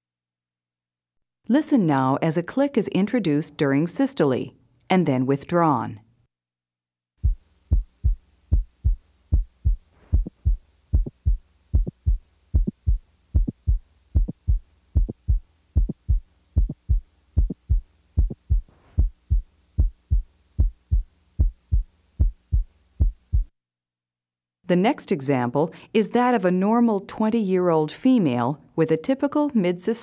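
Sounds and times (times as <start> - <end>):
faint steady hum: 7.2 - 23.5
heartbeat lub-dub: 7.2 - 23.5
high-pitched heart click: 7.2 - 23.5.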